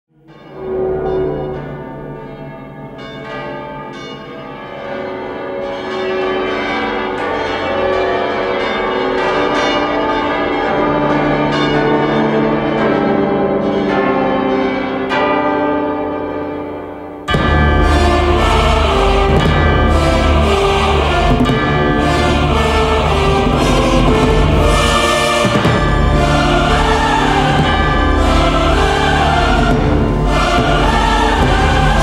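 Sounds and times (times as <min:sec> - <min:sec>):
church bells pealing: 0:00.2 - 0:32.0.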